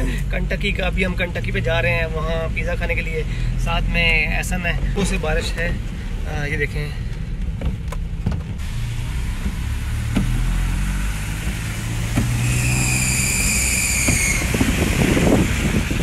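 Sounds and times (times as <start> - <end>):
car engine hum: 0.0 - 16.0
rain and wet tyres hissing: 3.0 - 7.6, 8.5 - 16.0.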